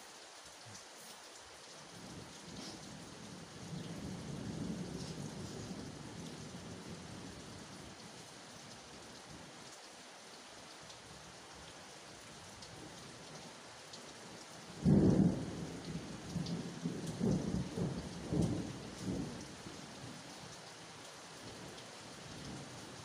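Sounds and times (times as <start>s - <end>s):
steady rain: 0.0s - 23.0s
thunderclap and rumbles: 3.6s - 7.4s, 14.8s - 19.4s.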